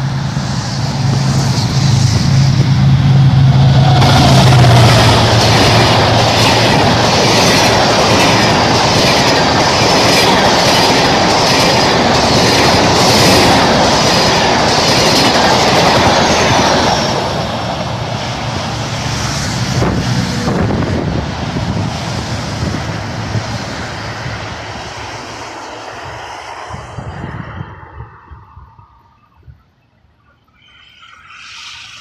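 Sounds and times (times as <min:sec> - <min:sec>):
locomotive engine drone: 0:00.0 - 0:32.0
wheels clacking over rail joints: 0:03.9 - 0:18.8.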